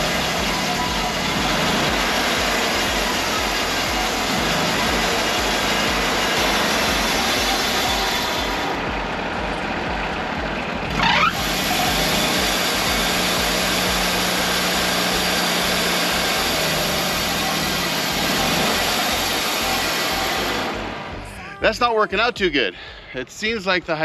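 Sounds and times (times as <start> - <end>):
sawmill engine running: 0.0 - 24.0.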